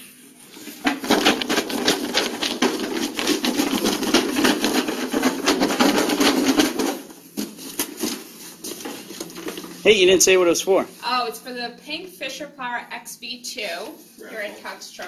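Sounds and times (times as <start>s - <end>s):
paper tickets rattling in box: 0.8s - 10.4s.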